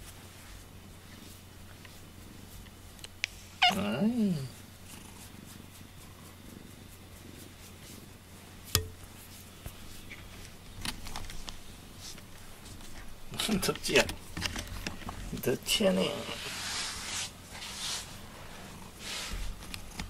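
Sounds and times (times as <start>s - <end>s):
cat meowing: 3.6s - 3.9s.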